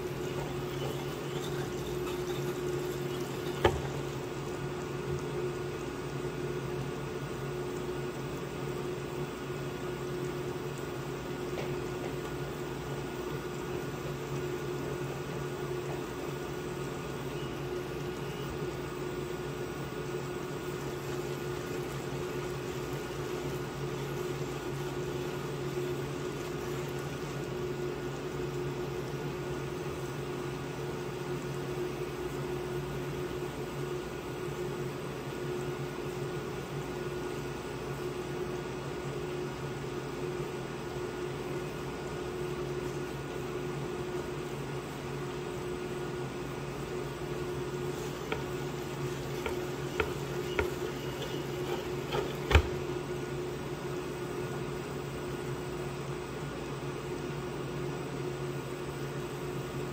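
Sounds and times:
water bubbling in saucepan: 0.0 - 37.4, 46.9 - 53.2
induction cooktop hum: 0.0 - 59.9
pan knocking on hob: 48.3 - 52.8.

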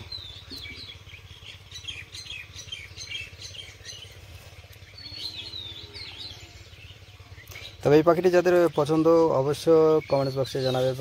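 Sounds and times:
low outdoor rumble: 0.0 - 11.0
small birds chirping: 0.0 - 11.0.

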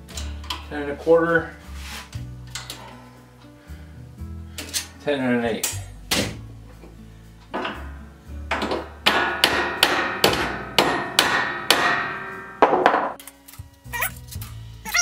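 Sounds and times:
hammer tapping on sheet metal: 8.5 - 13.2.

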